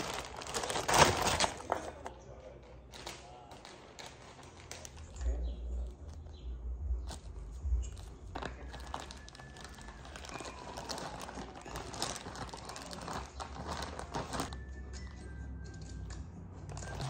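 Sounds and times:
plastic bag crinkling: 0:00.0 - 0:02.1, 0:02.8 - 0:05.4, 0:07.1 - 0:14.6.

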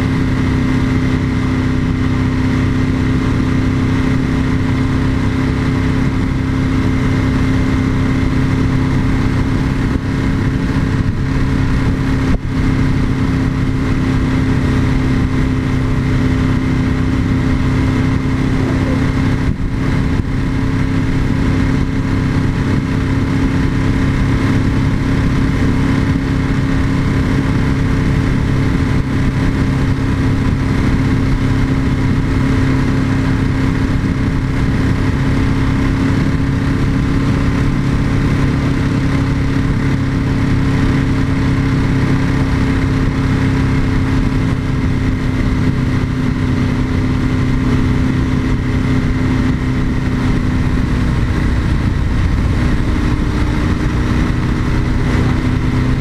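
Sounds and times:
motorcycle engine running steadily: 0:00.0 - 0:56.0
wind and road hiss: 0:00.0 - 0:56.0.

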